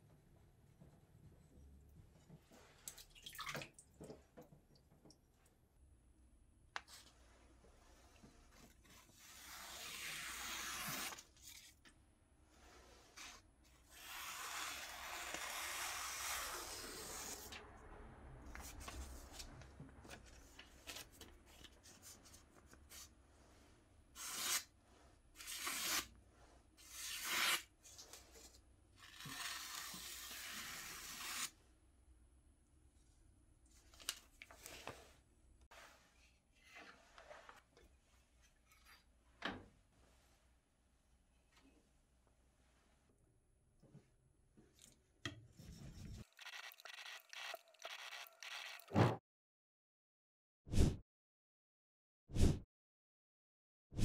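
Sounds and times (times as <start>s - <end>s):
knife slicing through paper: 8.8s - 11.8s, 24.2s - 24.7s, 25.4s - 26.2s.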